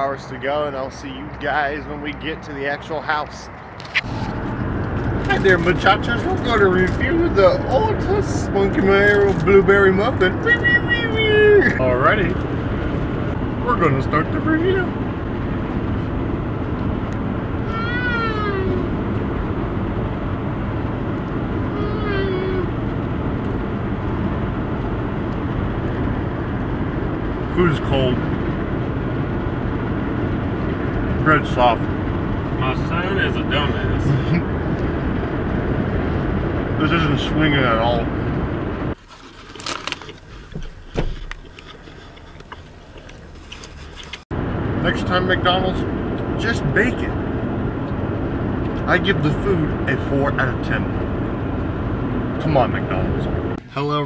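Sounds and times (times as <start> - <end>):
vehicle cab noise: 3.4 - 54.0
chewing with wet smacks: 39.5 - 44.3.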